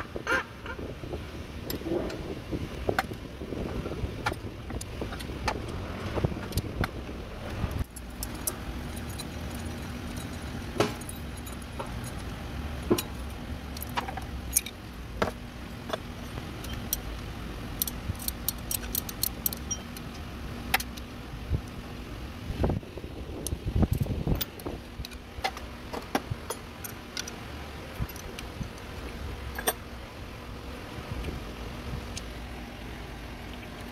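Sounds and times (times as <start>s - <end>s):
low background rumble: 0.0s - 33.9s
ratchet wrench clicking on metal: 17.8s - 20.1s.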